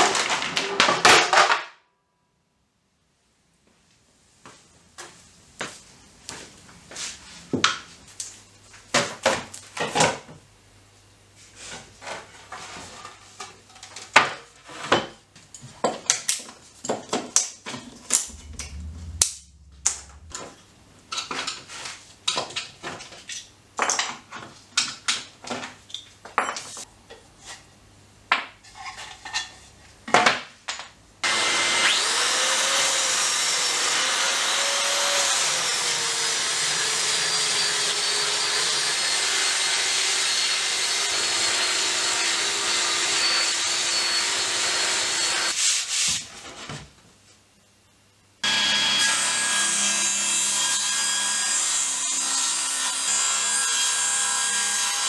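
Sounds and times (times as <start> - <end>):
wooden boards and tools clattering: 0.0 - 1.8
electric sander on wood: 31.2 - 45.6.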